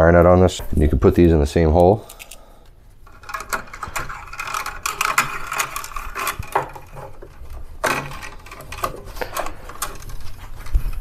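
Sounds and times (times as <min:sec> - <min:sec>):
cables scraping through plastic box: 0:03.1 - 0:11.0.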